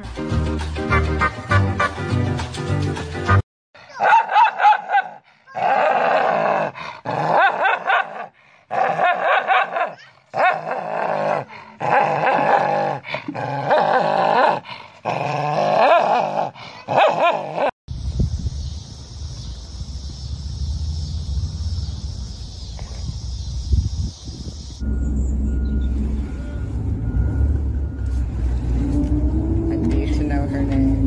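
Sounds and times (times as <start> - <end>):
dogs snarling and barking: 4.0 - 17.7.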